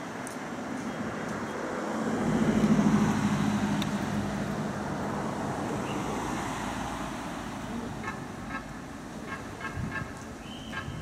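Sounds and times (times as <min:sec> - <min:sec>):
city road traffic: 0:00.0 - 0:11.0
vehicle engine passing: 0:01.7 - 0:09.0.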